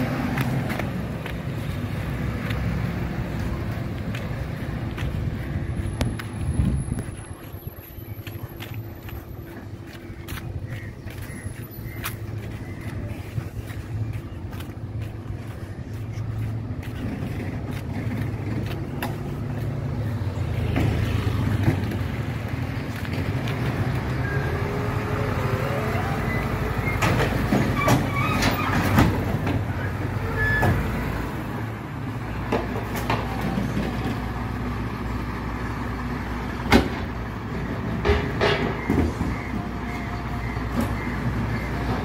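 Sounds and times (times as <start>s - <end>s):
bins clanking and squeaking: 26.3s - 30.9s.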